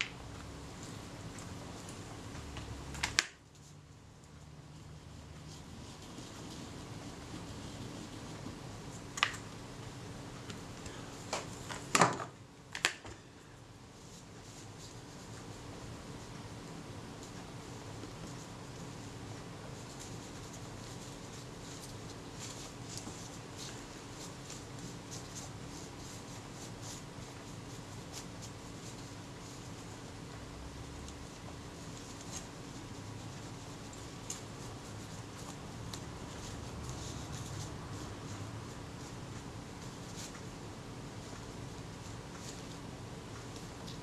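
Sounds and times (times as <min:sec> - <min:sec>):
wooden stick scratching: 0:00.0 - 0:10.9
faint steady hum: 0:00.0 - 0:44.0.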